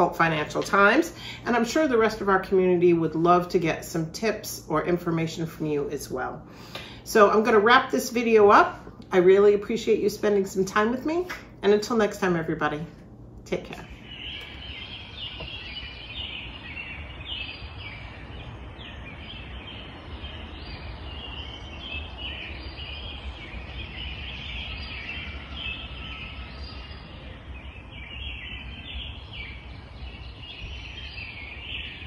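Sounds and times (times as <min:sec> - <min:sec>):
birds chirping and chattering: 0:13.5 - 0:32.0.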